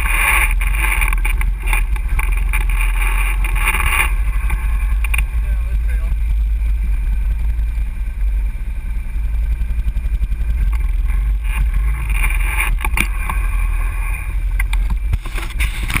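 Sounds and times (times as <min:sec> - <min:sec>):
sharp clicks and knocks: 0:00.0 - 0:06.3, 0:10.2 - 0:13.5, 0:14.5 - 0:16.0
atv engines idling: 0:00.0 - 0:16.0
quad engine pulling away: 0:00.0 - 0:16.0.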